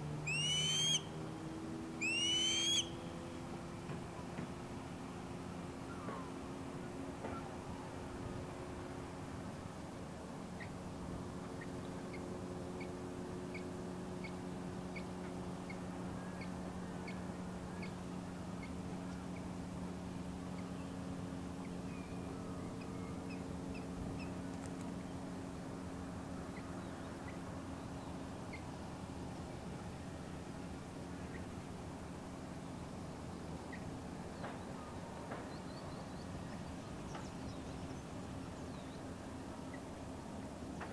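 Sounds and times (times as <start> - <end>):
steady low hum: 0.0 - 40.9
bird whistled chirps: 0.3 - 1.0, 2.0 - 3.0.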